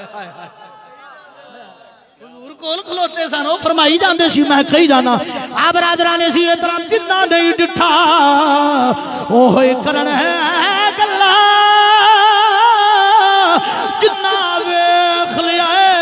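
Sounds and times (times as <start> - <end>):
man singing into a microphone: 3.8 - 16.0.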